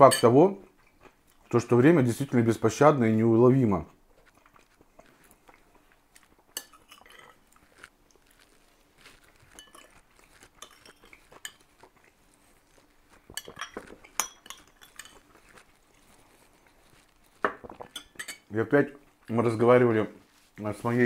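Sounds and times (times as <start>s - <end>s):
spoon clinking on porcelain bowl: 9.5s - 9.9s, 10.6s - 11.6s, 13.3s - 15.2s, 17.8s - 18.5s.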